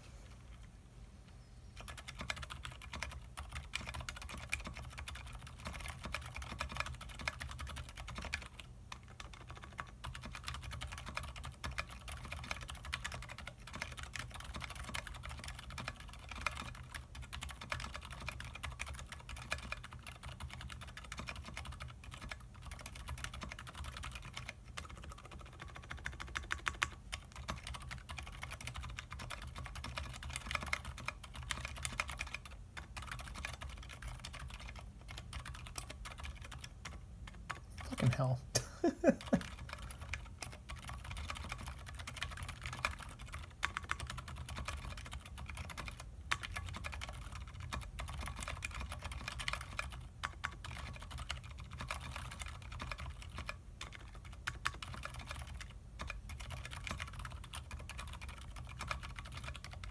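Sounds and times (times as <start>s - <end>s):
mechanical keyboard typing: 1.8s - 38.4s, 39.1s - 59.9s.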